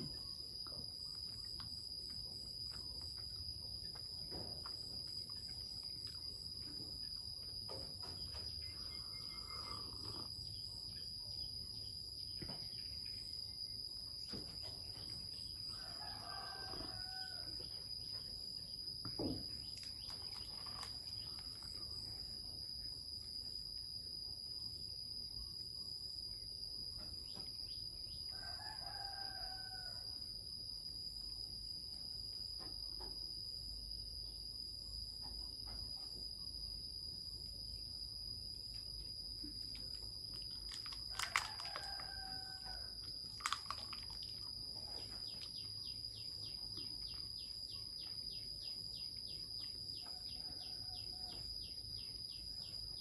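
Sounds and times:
high-pitched insect trill: 0.0 - 53.0
rooster crowing: 15.7 - 17.7, 28.3 - 30.2, 41.1 - 43.0, 50.0 - 51.5.

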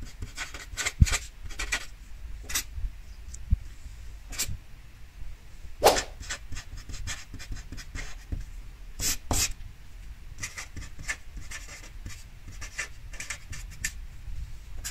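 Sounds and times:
marker pen scratching on paper: 0.0 - 1.9, 5.9 - 8.4, 10.4 - 14.0.

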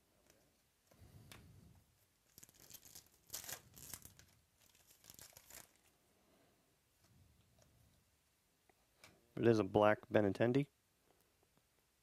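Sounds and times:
card pack wrapper tearing: 2.3 - 5.9.

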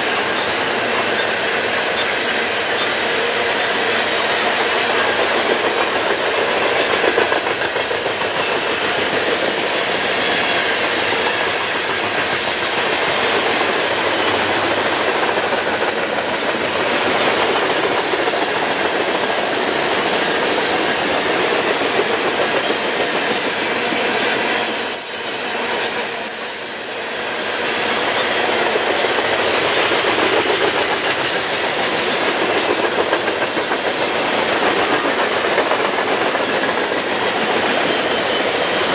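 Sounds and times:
freight train wheels rumbling: 0.0 - 38.9
wheels clacking over rail joints: 28.0 - 38.9.

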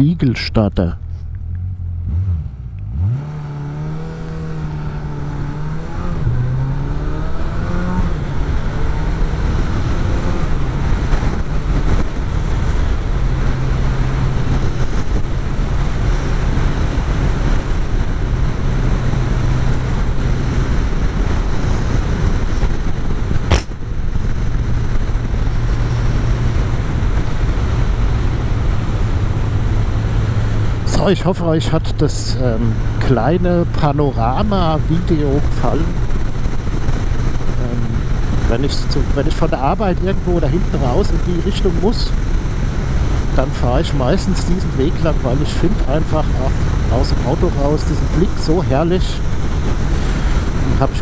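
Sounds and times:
motorcycle engine revving: 1.0 - 51.0
wind noise: 3.1 - 51.0
sharp click: 23.4 - 23.8.

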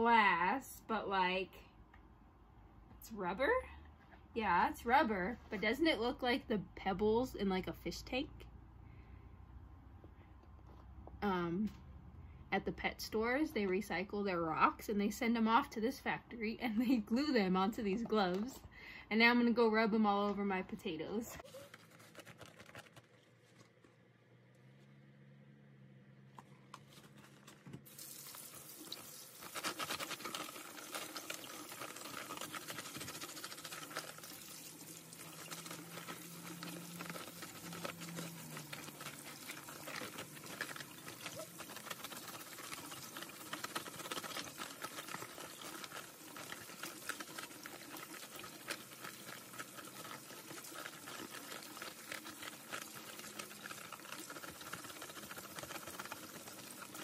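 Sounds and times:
gloves scrubbing potato skins: 4.2 - 8.2, 12.6 - 23.8, 26.8 - 57.0
faucet water running: 27.9 - 57.0.

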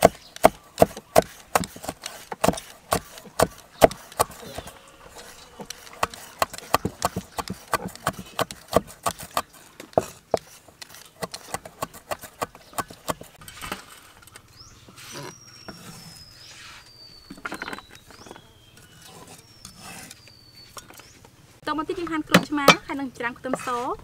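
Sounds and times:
cleaver chopping on wooden block: 0.0 - 4.7, 5.6 - 13.3.

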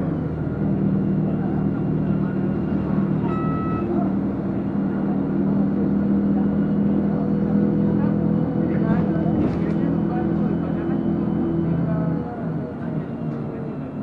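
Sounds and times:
car engine and road noise: 0.0 - 14.0
short high tone: 3.2 - 4.1.

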